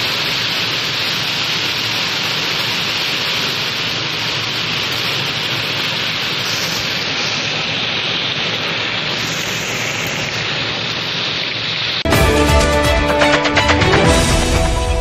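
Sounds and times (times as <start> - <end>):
heavy rain hissing: 0.0 - 13.2
news theme music: 12.1 - 15.0.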